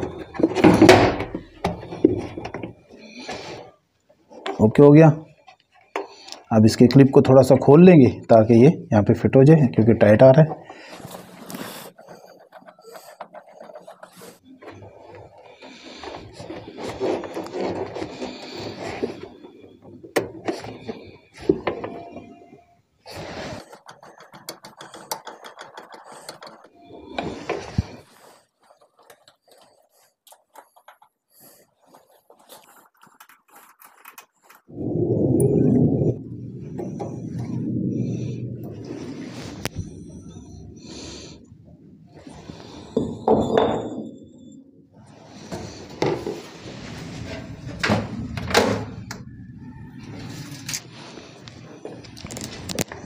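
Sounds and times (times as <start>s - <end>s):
scraping: 10.0s - 41.5s.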